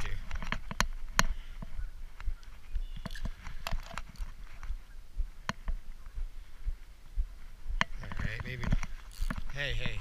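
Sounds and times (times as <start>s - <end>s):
fishing reel clicks and knocks: 7.8s - 10.0s.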